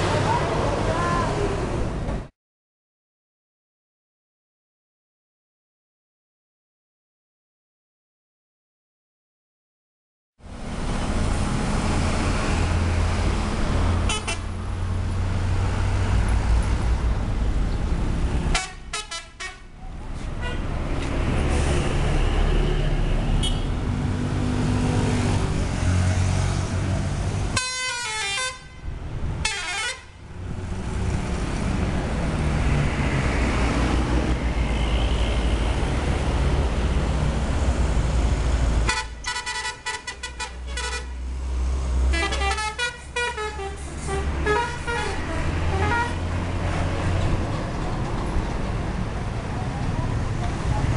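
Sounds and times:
diesel bus engines and traffic: 0.0s - 2.3s, 10.4s - 50.9s
melodic bus air horn: 14.1s - 14.5s, 18.5s - 19.7s, 27.6s - 28.8s, 29.4s - 30.1s, 38.9s - 41.2s, 42.1s - 46.3s.

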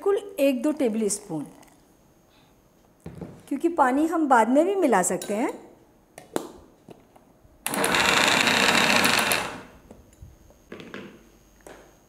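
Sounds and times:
mixer grinder running: 7.7s - 9.8s.

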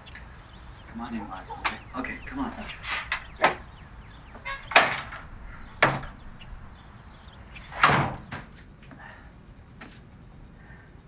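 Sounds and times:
door banging shut: 1.6s - 3.7s, 4.3s - 6.4s, 7.7s - 8.6s.

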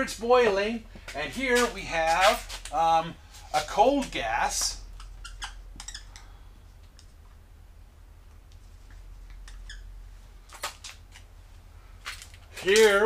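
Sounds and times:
low electrical hum: 0.0s - 13.0s
marker squeaking on whiteboard: 4.9s - 6.4s, 9.3s - 9.9s.

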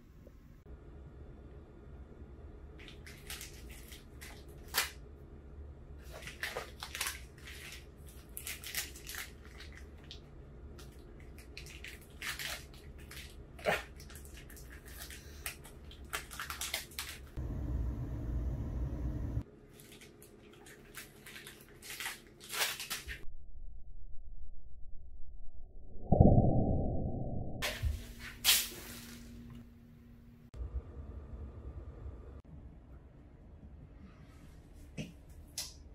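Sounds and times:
foil wrapper crinkling: 2.8s - 5.0s, 6.0s - 10.2s, 10.8s - 13.4s, 14.0s - 17.4s, 19.7s - 23.2s
steady low rumble: 17.4s - 19.4s, 23.3s - 28.3s.

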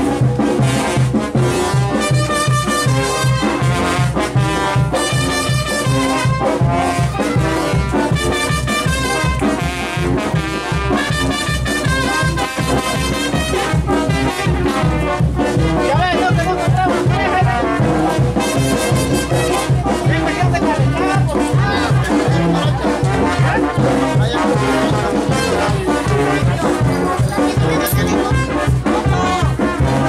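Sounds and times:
brass band dance tune: 0.0s - 30.0s.

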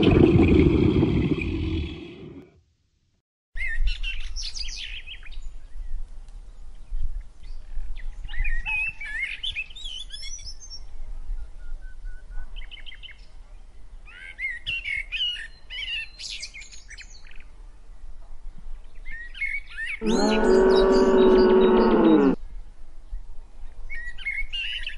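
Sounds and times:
small birds chirping: 18.9s - 22.4s.

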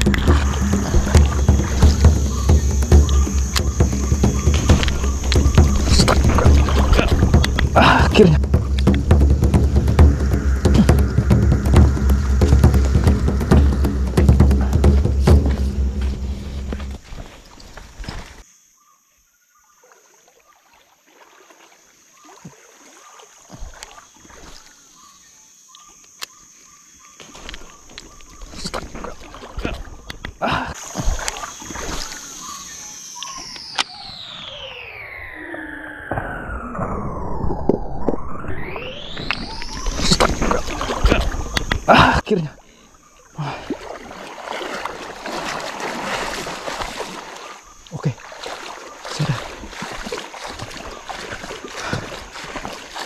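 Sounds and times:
thin high whine: 0.0s - 17.6s, 30.8s - 41.9s
insect drone: 0.0s - 53.0s
river water: 0.0s - 53.0s.

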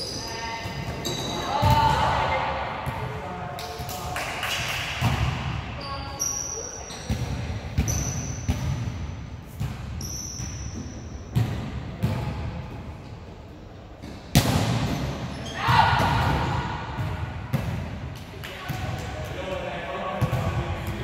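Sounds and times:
sneakers squeaking on court: 0.0s - 1.8s, 5.8s - 9.0s, 9.6s - 11.5s
volleyball slaps and thuds: 3.7s - 5.6s, 11.3s - 12.6s, 14.0s - 19.1s.

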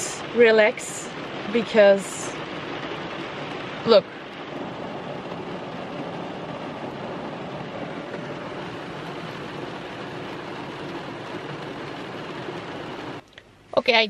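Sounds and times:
heavy rain on car roof: 0.0s - 13.2s.

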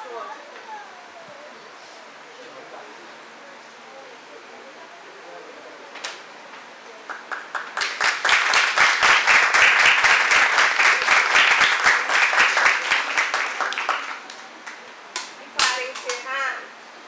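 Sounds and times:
audience applauding: 7.0s - 14.9s.

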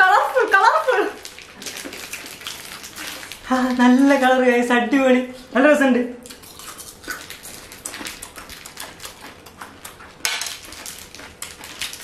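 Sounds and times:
paper wrappers crinkling: 0.4s - 4.6s.

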